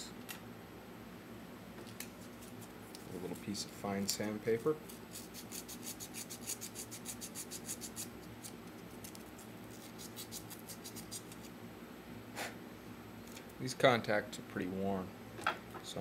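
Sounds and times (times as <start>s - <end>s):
sandpaper scratching metal: 5.0s - 8.5s, 9.7s - 11.5s.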